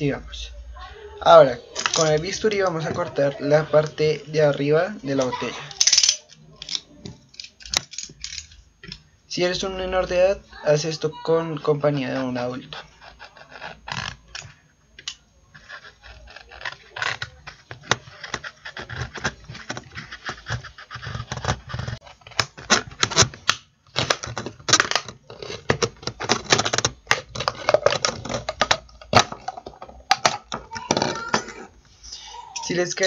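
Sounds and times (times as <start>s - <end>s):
knife scraping plastic bottle: 12.6s - 14.5s, 15.5s - 31.7s.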